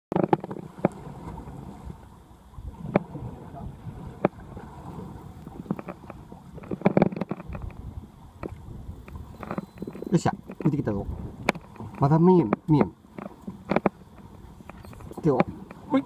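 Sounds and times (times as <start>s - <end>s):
boat engine rumble: 0.1s - 16.0s
wind: 0.1s - 16.0s.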